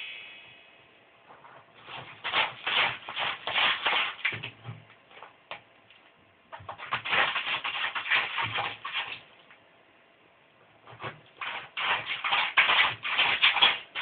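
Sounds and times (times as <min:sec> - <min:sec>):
kitten scratching cat litter: 0:01.3 - 0:05.3, 0:06.6 - 0:09.2, 0:10.9 - 0:14.0.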